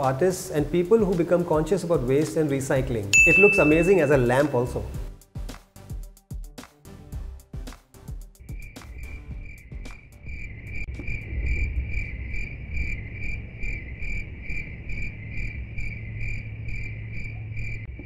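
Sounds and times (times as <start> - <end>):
crickets chirping: 8.4 - 18.0
low rumble: 10.8 - 18.0.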